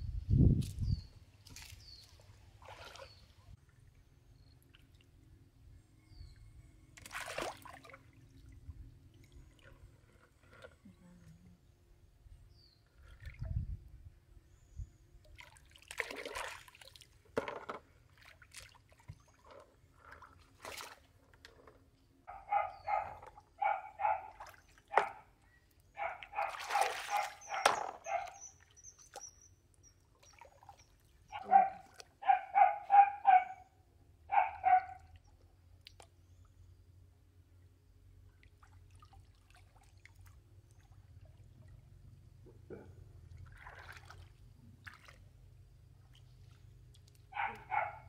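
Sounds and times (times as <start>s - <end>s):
water splashing: 1.4s - 3.3s, 7.0s - 9.8s, 15.2s - 17.3s, 26.0s - 29.3s, 43.3s - 45.4s
dog yapping: 22.3s - 24.3s, 26.0s - 28.4s, 31.3s - 33.6s, 34.3s - 35.0s, 47.4s - 48.0s.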